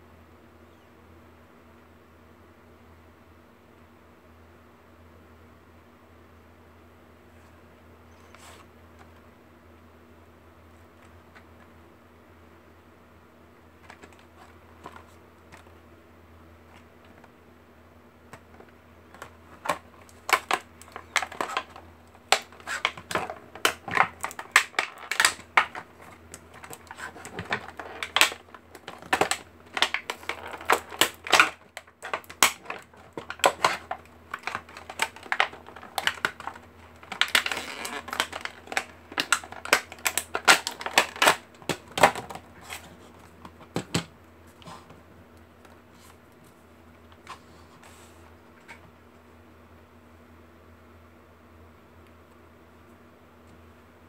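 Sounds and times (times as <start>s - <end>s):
plastic packaging crackling: 18.4s - 44.1s.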